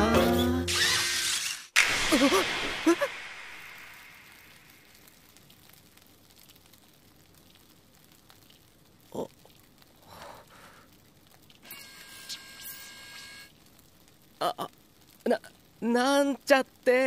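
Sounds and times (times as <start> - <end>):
food sizzling in a frying pan: 1.8 - 8.4.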